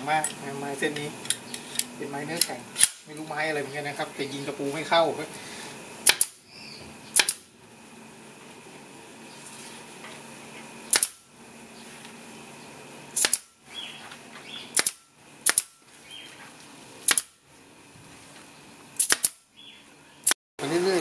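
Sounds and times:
nail gun firing: 2.4 - 3.1, 6.0 - 6.4, 7.1 - 7.5, 10.9 - 11.2, 13.2 - 13.5, 14.7 - 15.8, 17.0 - 17.4, 19.0 - 19.4.

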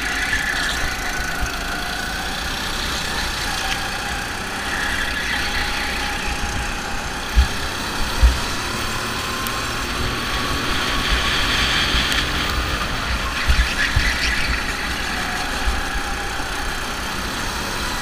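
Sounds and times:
go-kart engine: 0.0 - 18.0
low thumps: 7.2 - 8.9.

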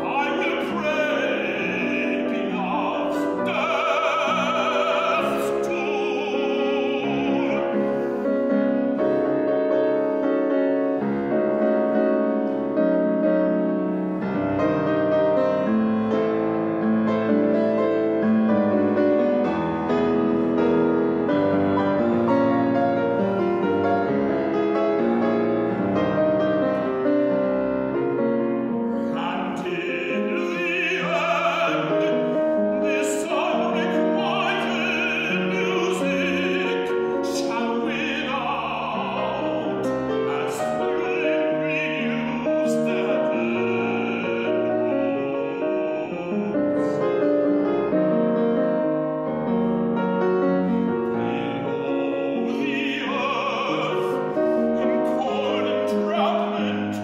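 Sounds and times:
man singing operatically: 0.0 - 8.4, 28.6 - 48.0, 50.6 - 57.0
piano chords: 0.0 - 57.0.

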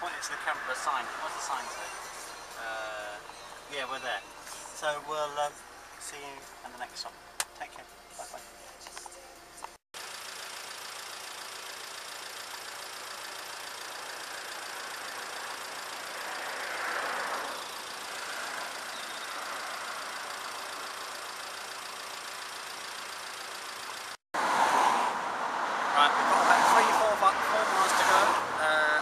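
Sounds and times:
steady engine hum: 0.0 - 24.2
car driving past: 16.2 - 20.2, 24.4 - 28.8.

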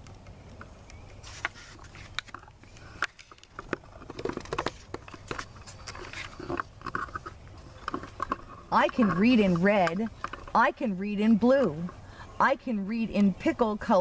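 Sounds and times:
book pages turning: 0.0 - 8.4.

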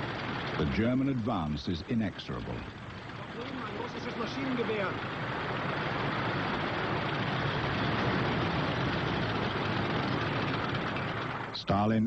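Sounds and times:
steady battle rumbling: 0.0 - 12.0.

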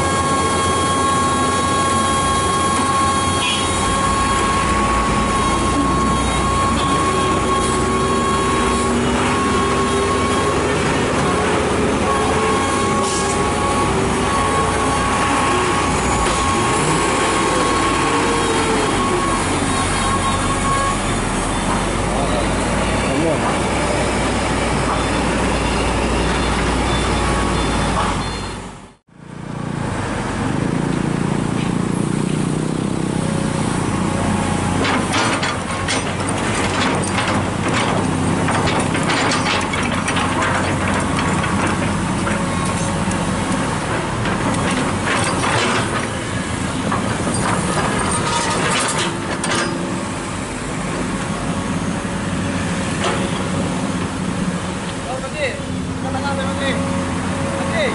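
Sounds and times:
excavator diesel engine running: 0.0 - 57.9
sharp knocks and clanks: 34.8 - 50.0.

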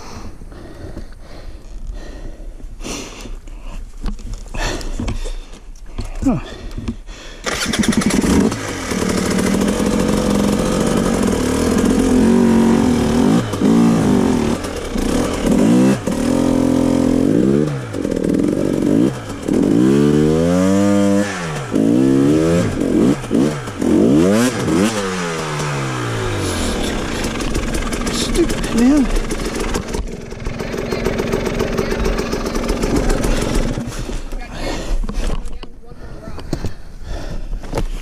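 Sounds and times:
dirt bike engine revving: 7.5 - 34.1.

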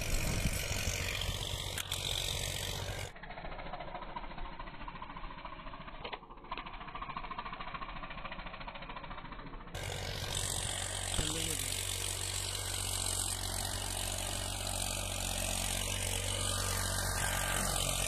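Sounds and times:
wind noise: 0.0 - 1.5
tractor engine running: 0.0 - 18.0.

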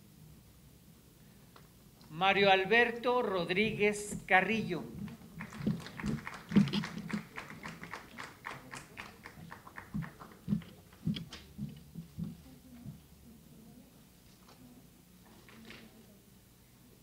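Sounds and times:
sparse hand clapping: 5.0 - 11.8.

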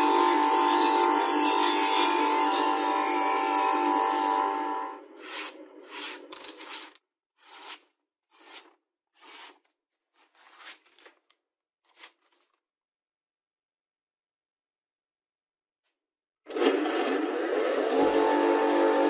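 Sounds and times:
knife slicing through paper: 5.2 - 11.2, 11.8 - 12.6.

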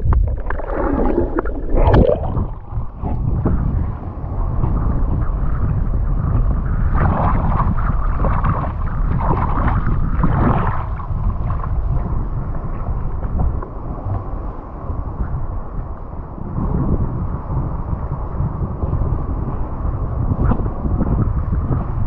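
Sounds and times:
river water sloshing and splashing: 0.0 - 3.2, 6.9 - 11.7
wind rumbling on microphone: 0.0 - 22.0.

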